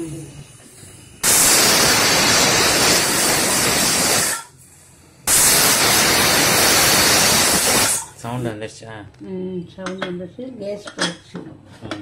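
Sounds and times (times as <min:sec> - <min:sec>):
pressure cooker whistling: 0:01.2 - 0:04.6, 0:05.3 - 0:08.2.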